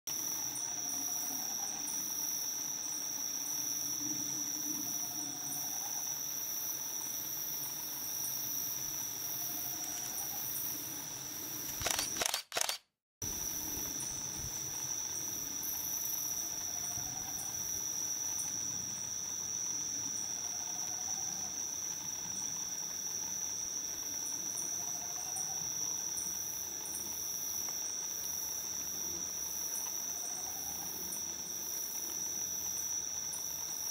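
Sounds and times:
insect chorus drone: 0.1 - 33.9
brief crackle: 11.7 - 12.9.

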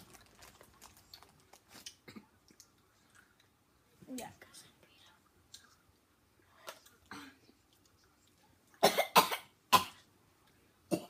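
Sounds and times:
boy coughing and gagging: 8.8 - 10.0.

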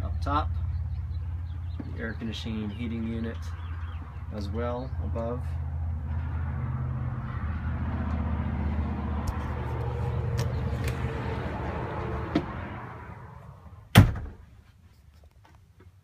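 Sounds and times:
door shutting with loud bang: 13.9 - 14.4.

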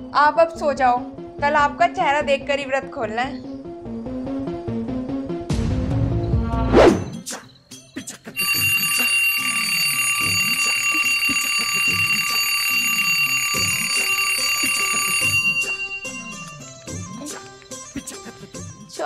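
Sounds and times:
background music: 0.0 - 10.6, 11.5 - 19.0
alarm ringing: 8.4 - 17.2.

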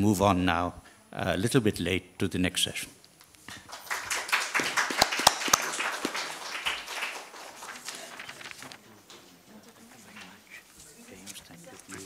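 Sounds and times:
faint room noise: 0.0 - 12.0
audience applause: 3.6 - 8.6.

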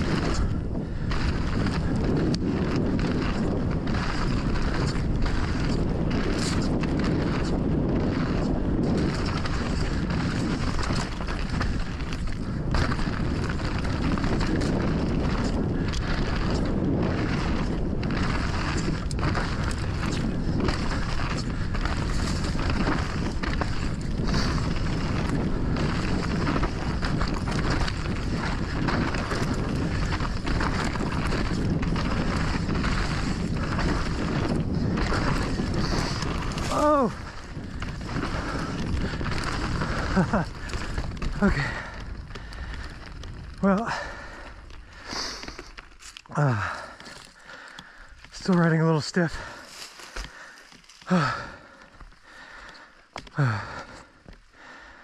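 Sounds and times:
bike clicking and rattling: 0.0 - 55.0
tyres in loose dirt: 0.0 - 55.0
wind buffeting microphone: 0.0 - 55.0.

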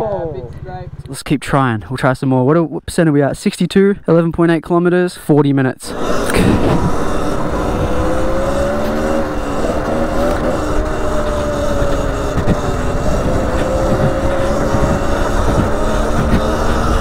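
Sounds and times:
wind: 0.0 - 17.0
electric motor whine: 5.9 - 17.0.

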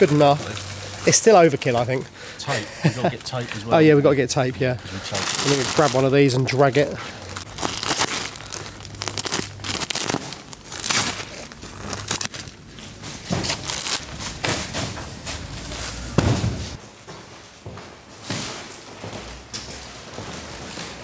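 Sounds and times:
plastic packaging crinkling and scraping: 0.0 - 4.0, 4.8 - 16.8
thump: 16.2 - 16.7.

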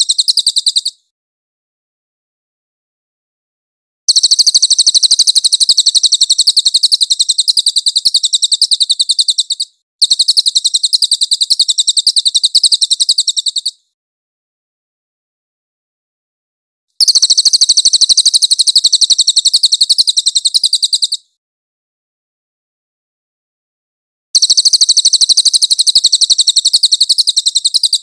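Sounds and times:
bird rattling call: 0.0 - 1.0, 4.1 - 13.8, 17.0 - 21.2, 24.4 - 28.0.

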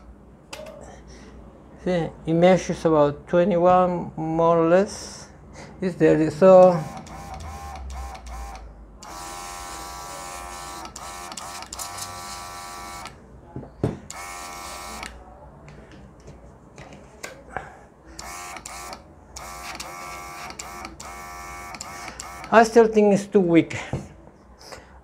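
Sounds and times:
airbrush compressor motor whining: 6.6 - 13.1, 18.2 - 22.6.

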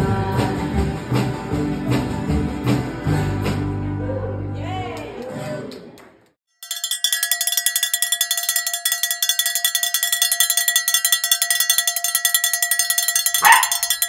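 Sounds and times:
bell ringing rapidly: 6.5 - 14.0.

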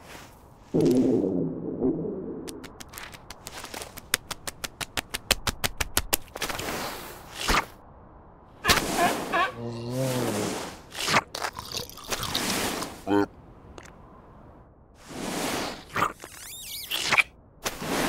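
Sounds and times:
fast run of sharp clicks: 2.5 - 6.4
wavering voice-like call: 8.6 - 10.3.

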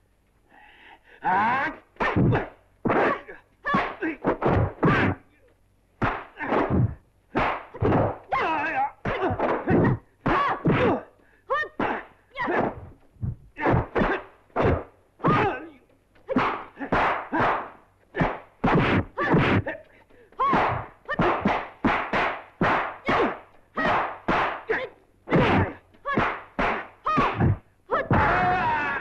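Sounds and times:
sharp punch and kick thwacks: 6.0 - 11.0, 11.8 - 15.6, 16.2 - 19.8, 20.4 - 28.4.

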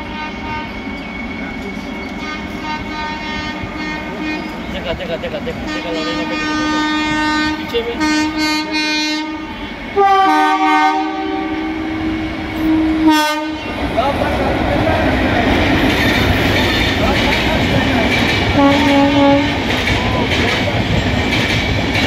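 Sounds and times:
train horn blasts: 0.0 - 1.0, 2.2 - 4.7, 5.6 - 13.8, 18.5 - 19.7
train rumble and wheel clatter: 0.0 - 22.0.

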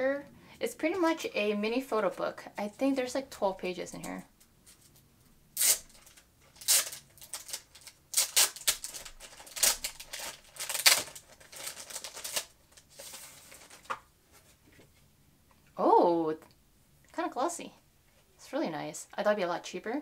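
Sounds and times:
plastic sleeve crinkling: 5.6 - 14.5.

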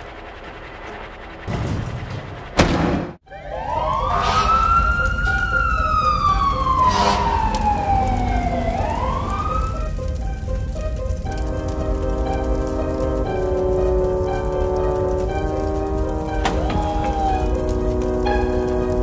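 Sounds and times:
emergency siren wailing: 3.2 - 19.0
low engine rumble: 3.8 - 19.0.

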